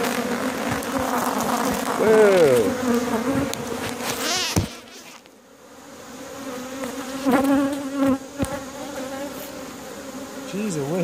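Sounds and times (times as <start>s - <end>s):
bee buzzing close by: 0.0s - 11.0s
honeybees buzzing: 0.0s - 11.0s.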